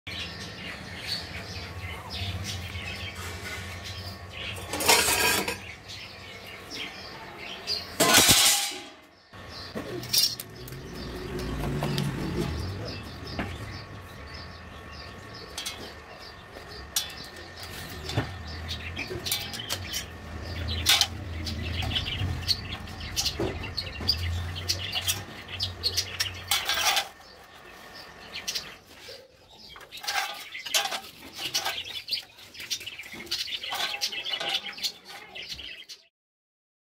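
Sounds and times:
metal clattering: 4.5 - 5.7, 8.0 - 9.1, 16.9 - 27.3, 29.9 - 32.2
metal tools clicking and scraping: 4.5 - 5.7, 8.0 - 9.0, 10.0 - 10.8, 16.7 - 22.1, 25.9 - 27.2, 29.8 - 35.3.

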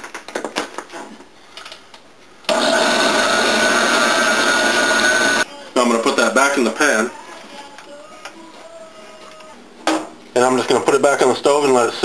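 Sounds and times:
blender motor whining: 2.5 - 5.4.

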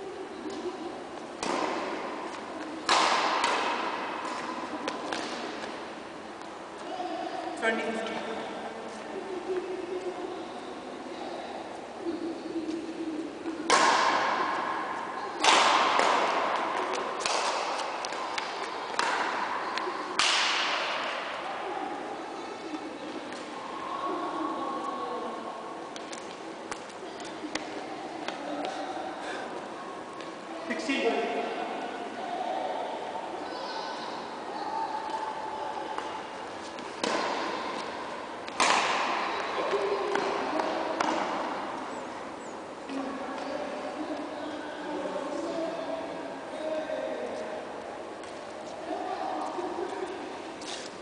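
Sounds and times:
rackets hitting shuttlecock: 1.4 - 5.8, 13.6 - 14.6, 15.4 - 21.4, 36.8 - 41.6.

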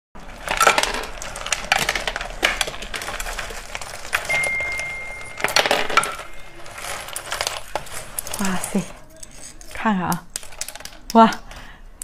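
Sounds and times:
ice cubes clinking in a bowl: 0.2 - 11.7
thin high tone: 4.1 - 7.1.

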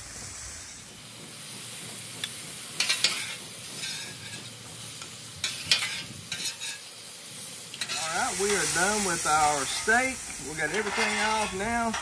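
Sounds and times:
meat sizzling on a griddle: 0.0 - 12.0
metal spatula scraping: 2.8 - 4.5, 5.4 - 6.9, 7.8 - 12.0.

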